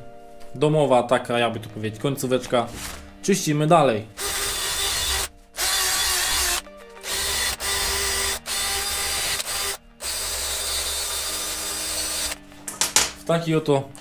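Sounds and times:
cordless drill motor hum: 4.2s - 12.4s.

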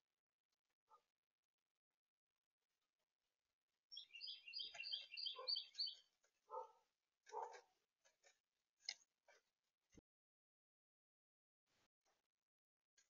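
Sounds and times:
songbird calling high notes: 3.9s - 6.0s.

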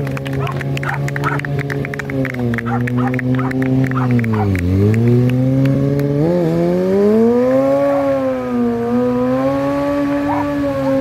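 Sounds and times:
motorcycle engine revving: 0.0s - 11.0s.

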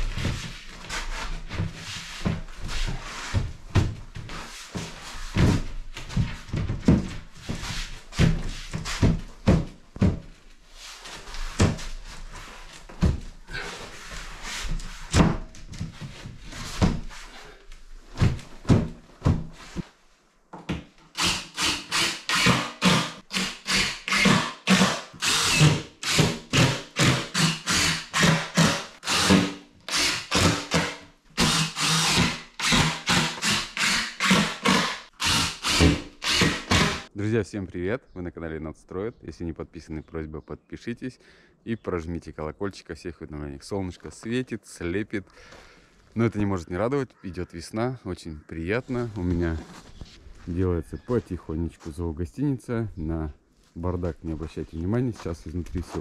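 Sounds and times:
knocks and thumps of ceiling panel: 1.4s - 10.4s, 11.4s - 12.0s, 12.8s - 13.4s, 14.6s - 17.1s, 18.1s - 19.6s
cordless drill driving screws: 21.2s - 37.1s.

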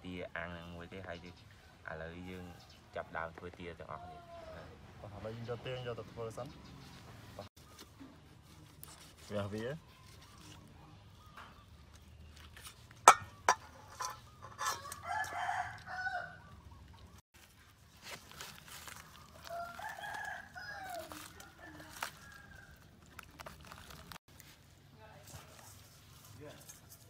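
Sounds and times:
rooster crowing: 14.5s - 16.6s, 19.3s - 22.8s.

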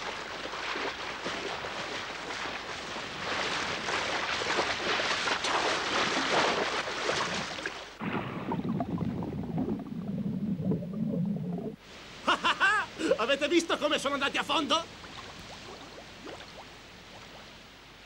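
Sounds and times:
heavy water splashing: 0.0s - 10.2s
underwater bubbling and gurgling: 8.0s - 11.8s.

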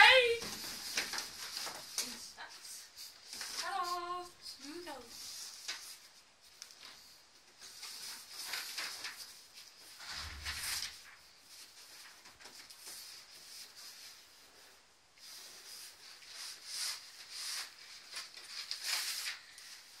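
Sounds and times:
cardboard box and paper rustling: 4.7s - 14.2s, 15.2s - 20.0s.

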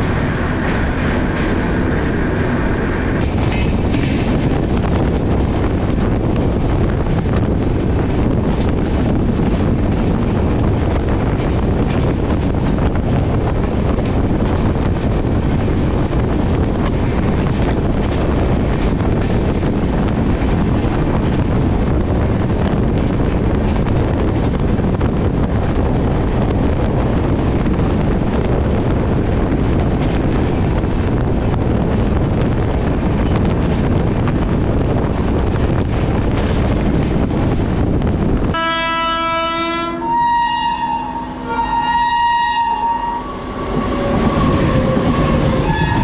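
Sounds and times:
passenger train running: 0.0s - 46.0s
wind on microphone: 0.0s - 46.0s
locomotive horn: 38.5s - 46.0s.

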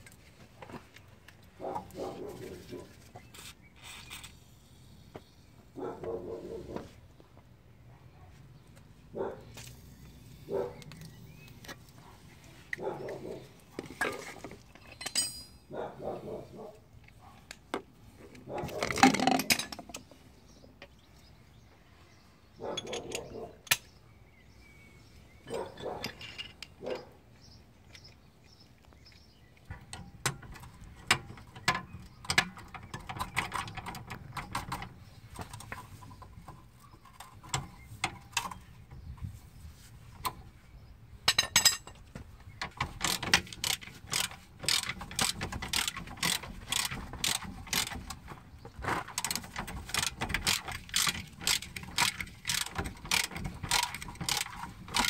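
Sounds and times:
ratchet wrench clicking: 43.0s - 48.2s, 49.2s - 55.0s.

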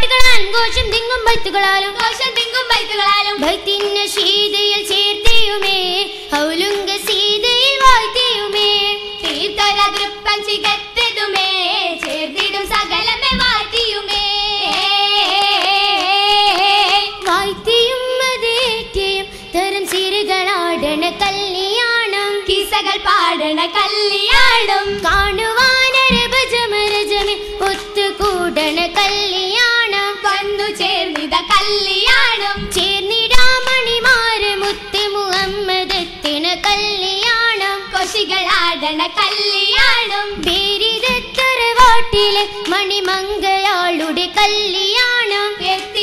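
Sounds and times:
girls singing together: 0.0s - 46.0s
sharp hand claps: 1.9s - 17.5s, 19.8s - 20.3s, 24.3s - 29.2s, 30.8s - 46.0s.

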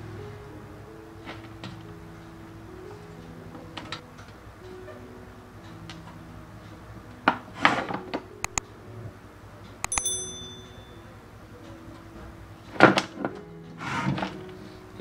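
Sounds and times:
sharp clicks: 8.4s - 8.6s, 9.8s - 10.1s
bright metallic clink: 9.9s - 11.2s.

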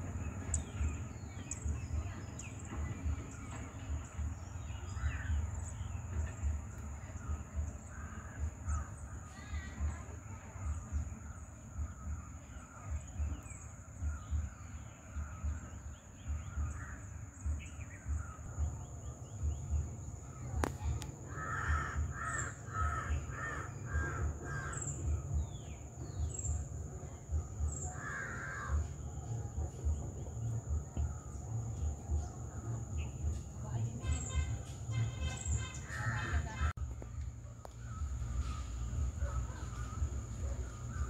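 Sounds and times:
crow cawing: 21.3s - 24.9s, 27.9s - 28.9s
low rumble: 28.7s - 35.0s.

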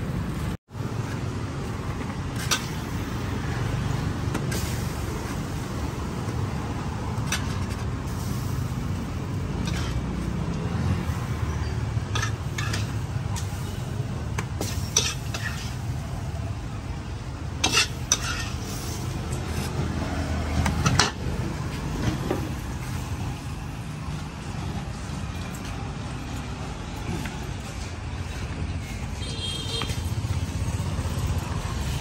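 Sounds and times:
metal spatula scraping a wok: 9.6s - 10.2s, 12.0s - 13.9s, 14.6s - 16.0s, 17.6s - 19.8s.

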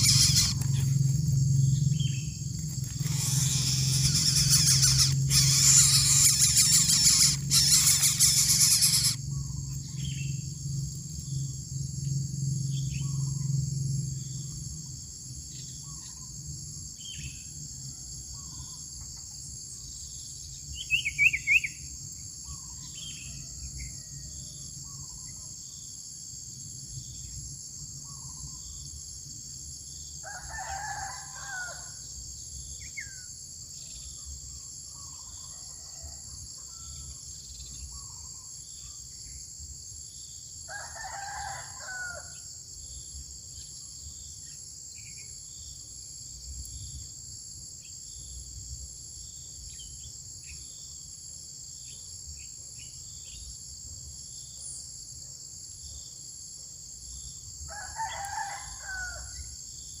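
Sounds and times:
high buzz of insects: 0.0s - 60.0s
rooster crowing: 30.2s - 32.1s, 35.5s - 37.1s, 40.7s - 42.5s, 57.7s - 59.6s.

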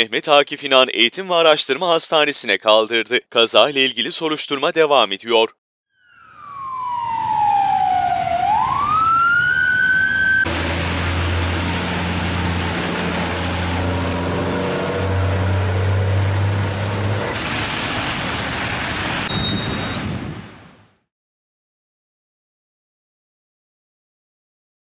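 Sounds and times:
emergency vehicle siren: 6.0s - 17.4s
low engine hum: 10.4s - 20.6s
vehicle passing on wet asphalt: 10.5s - 20.5s
traffic on wet road: 10.5s - 20.8s.

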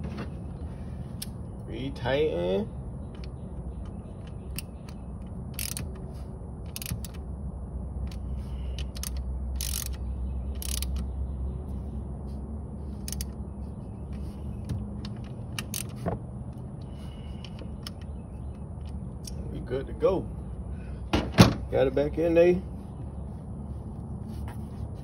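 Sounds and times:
low steady rumble: 0.0s - 25.0s
hand ratchet clicking: 5.5s - 6.0s, 6.7s - 7.2s, 8.8s - 11.0s, 15.6s - 16.0s.

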